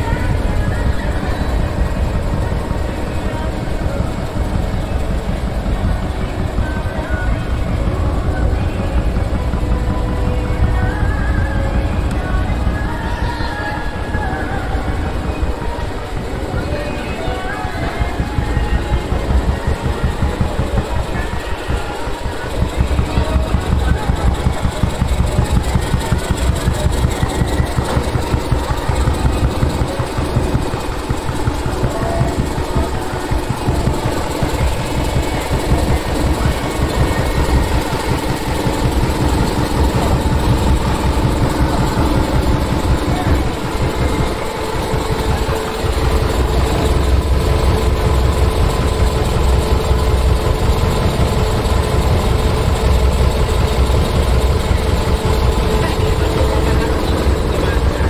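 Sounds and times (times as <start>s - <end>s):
diesel truck engine idling: 0.0s - 58.0s.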